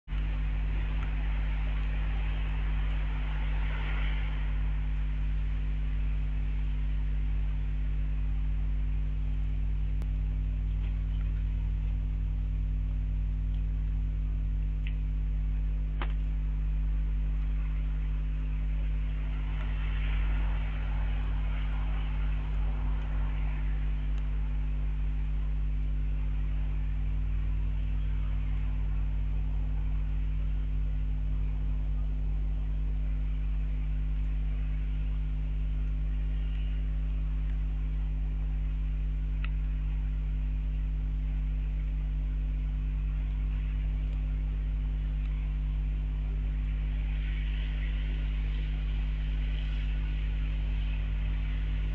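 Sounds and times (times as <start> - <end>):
electrical mains hum: 0.1 - 51.9.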